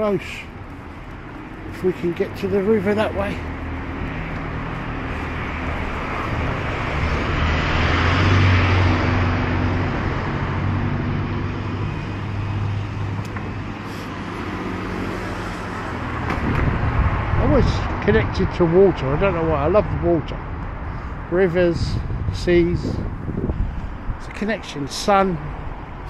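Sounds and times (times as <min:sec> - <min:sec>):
vehicle passing close: 0:00.0 - 0:18.1
road traffic engine and tyre noise: 0:00.0 - 0:26.0.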